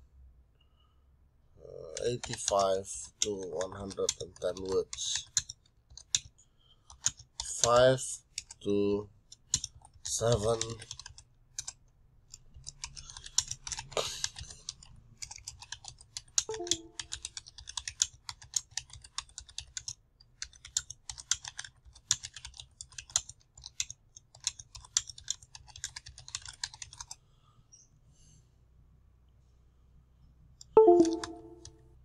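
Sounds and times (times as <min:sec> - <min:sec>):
keyboard typing: 0:01.8 - 0:06.3, 0:09.4 - 0:27.2, 0:30.8 - 0:31.8.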